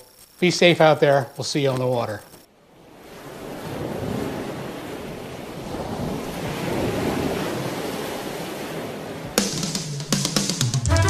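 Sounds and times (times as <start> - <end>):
wind buffeting microphone: 3.3 - 9.4
water rushing in boat wake: 3.3 - 9.5
music with sharp drum hits: 9.4 - 11.0.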